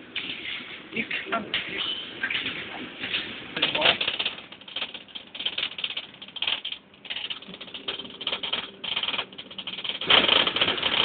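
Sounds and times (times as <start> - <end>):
bus fittings rattling: 1.5 - 11.0.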